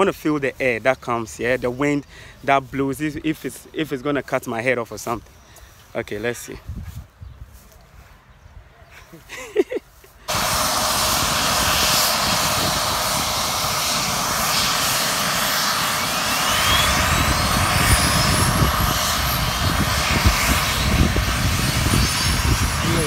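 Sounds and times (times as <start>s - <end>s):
helicopter turbine whine: 10.2s - 23.0s.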